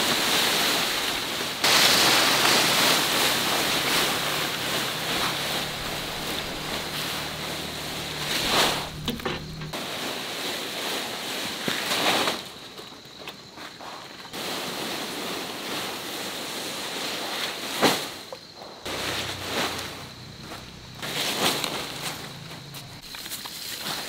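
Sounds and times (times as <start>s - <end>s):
wind rushing through vegetation: 0.0s - 10.3s
faint high whine: 1.7s - 9.8s.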